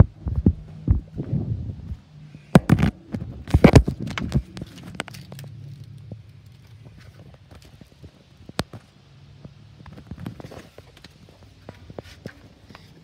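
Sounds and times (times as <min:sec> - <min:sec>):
footsteps in a railcar: 0:00.0 - 0:02.0.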